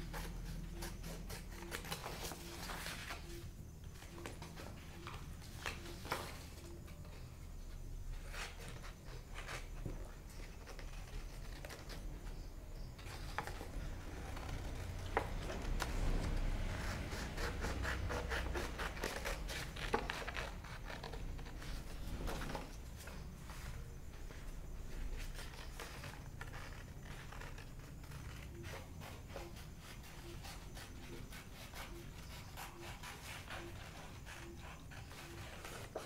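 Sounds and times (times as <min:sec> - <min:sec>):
paper rustling: 0:00.0 - 0:07.4, 0:13.0 - 0:36.0
scissors snipping paper: 0:13.0 - 0:21.6.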